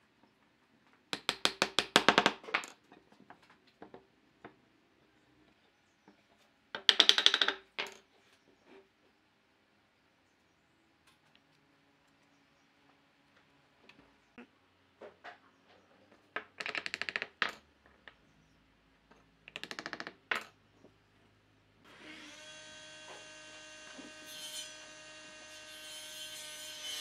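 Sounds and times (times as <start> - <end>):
wood-on-wood rattling and tapping: 6.8 - 8.0, 16.3 - 18.2, 19.1 - 20.6.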